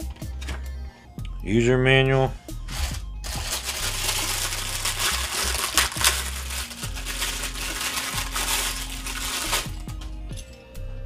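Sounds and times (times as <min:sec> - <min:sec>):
plastic bag crinkling: 0:02.7 - 0:09.9.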